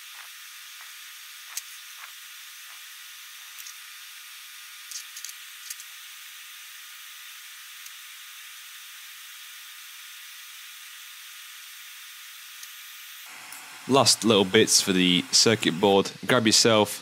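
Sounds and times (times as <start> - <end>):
steady background hiss: 12.6 - 17.0.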